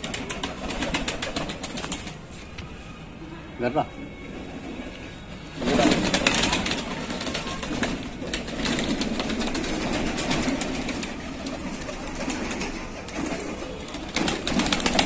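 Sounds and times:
flurry of pigeon wings: 0.0 - 2.2, 5.6 - 15.0
birds pecking at grain: 0.0 - 2.4, 5.6 - 15.0
pigeons cooing: 4.2 - 15.0.

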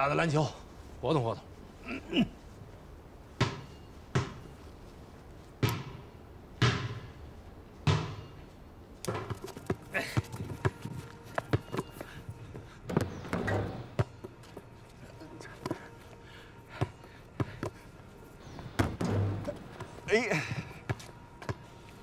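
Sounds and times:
basketball bouncing on hard surface: 3.4 - 4.4, 6.6 - 7.1, 7.9 - 8.2, 12.9 - 14.3.

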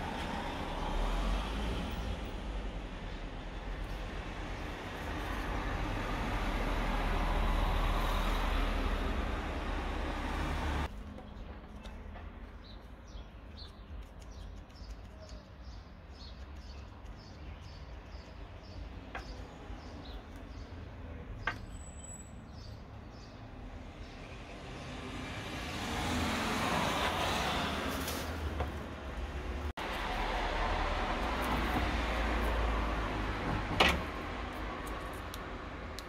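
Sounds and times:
small bird chirping: 11.2 - 23.4.

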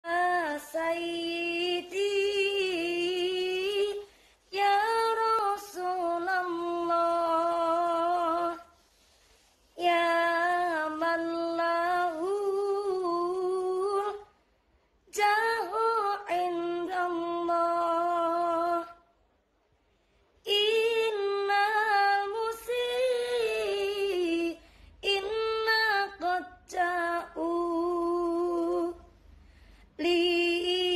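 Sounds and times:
woman singing unaccompanied: 0.0 - 8.8, 9.8 - 14.4, 15.1 - 19.0, 20.4 - 29.1, 30.0 - 30.9.

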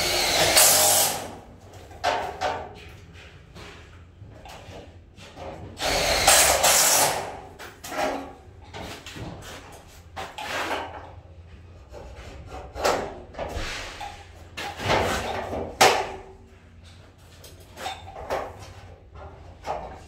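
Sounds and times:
cordless drill running: 0.0 - 1.3, 5.8 - 7.2.

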